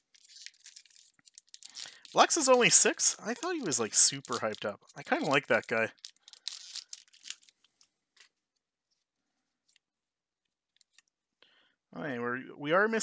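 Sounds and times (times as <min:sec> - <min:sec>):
trading cards clicking and rustling: 0:00.1 - 0:08.3.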